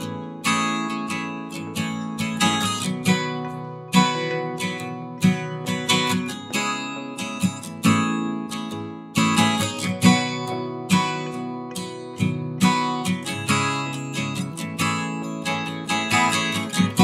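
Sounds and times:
strummed acoustic guitar: 0.0s - 17.0s.

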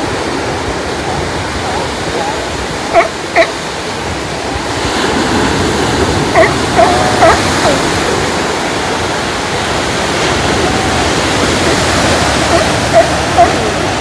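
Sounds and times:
surf on rocky shore: 0.0s - 14.0s.

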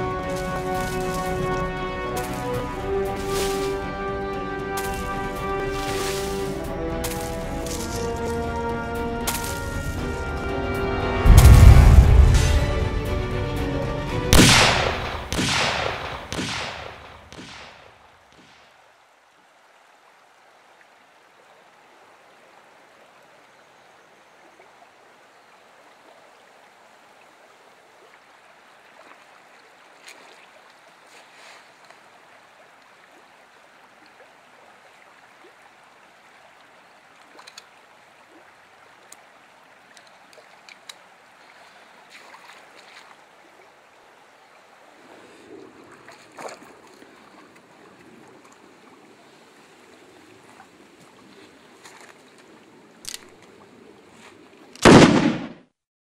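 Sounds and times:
creek trickling over stones: 0.0s - 10.9s, 17.3s - 55.0s
heavy booming hits: 11.2s - 17.6s.

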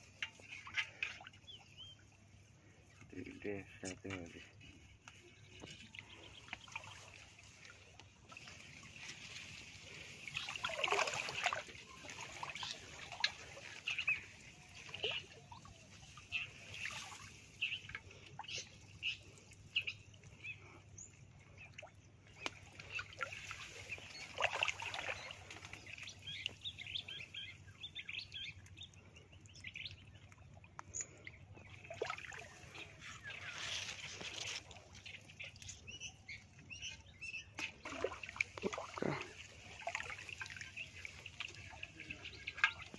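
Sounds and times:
birds chirping: 0.0s - 42.9s
water trickling and splashing: 0.0s - 42.9s
loud water splashes: 10.3s - 13.4s.

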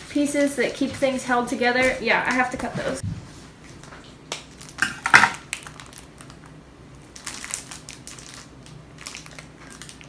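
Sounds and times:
plush toy crinkling: 4.5s - 10.0s.

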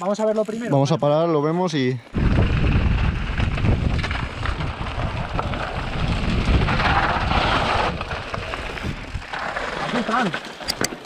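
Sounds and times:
bike rattling over stones: 0.0s - 11.0s
tyres crunching on gravel: 2.0s - 11.0s
wind buffeting a camera: 2.1s - 9.4s.

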